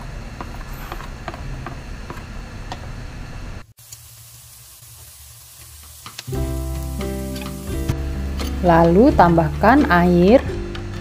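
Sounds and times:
vegetables sizzling in hot oil: 3.6s - 11.0s.

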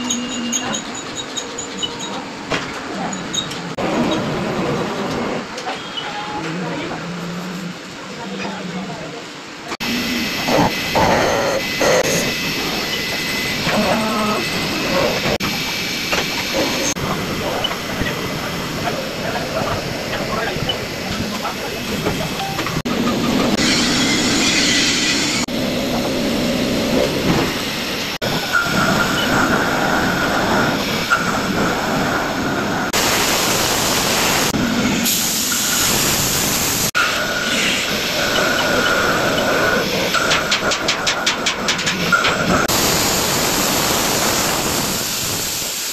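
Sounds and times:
milling machine cutting metal: 9.8s - 31.8s.

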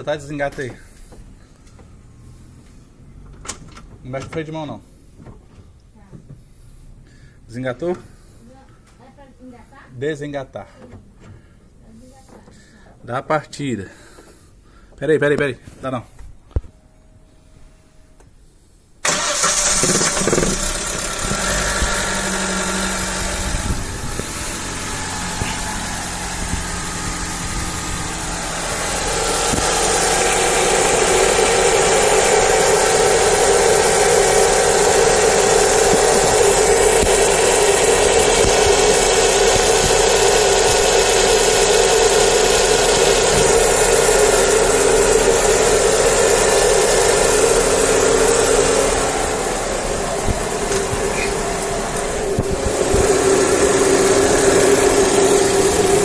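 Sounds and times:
car engine starting and running: 19.0s - 56.0s
steady whirring: 19.1s - 56.0s.

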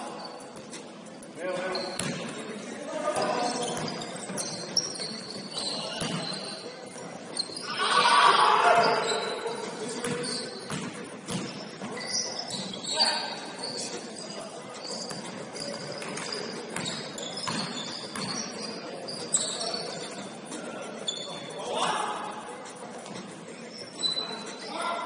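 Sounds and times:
sneaker squeaks: 0.0s - 25.0s
basketball bouncing on floor: 1.9s - 2.3s, 6.0s - 6.3s, 10.0s - 11.6s.

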